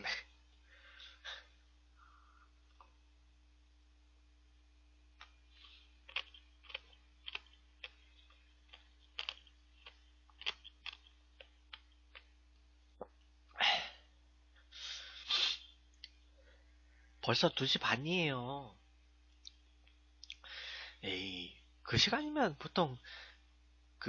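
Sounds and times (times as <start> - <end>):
wet chewing mouth sounds: 5.2 - 12.3
breathy puffs through nose: 14.8 - 15.7.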